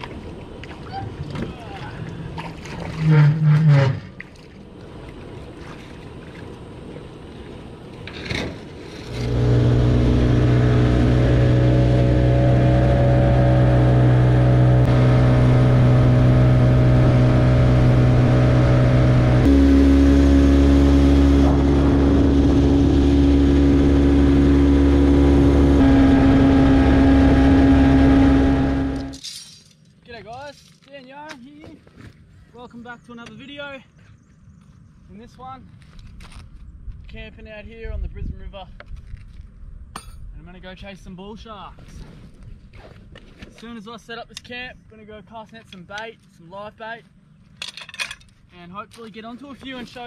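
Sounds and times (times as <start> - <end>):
outboard motor running: 9.0 - 29.2.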